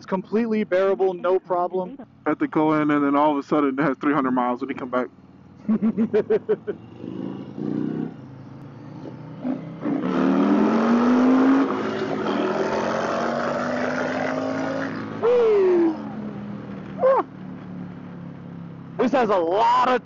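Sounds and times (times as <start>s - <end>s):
motorcycle engine accelerating: 5.1s - 19.0s.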